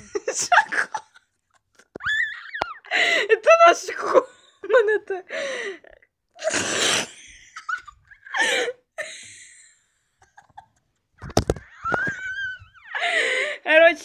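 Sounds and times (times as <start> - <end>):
person laughing: 10.2 - 13.2.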